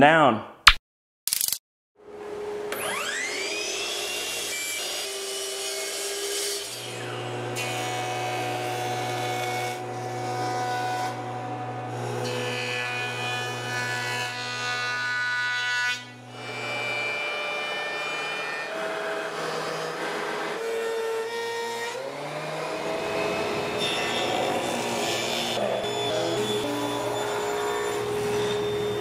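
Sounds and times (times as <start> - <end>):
thickness planer whining: 2.2 - 29.0
miter saw crosscutting: 22.0 - 29.0
jointer whining: 22.5 - 29.0.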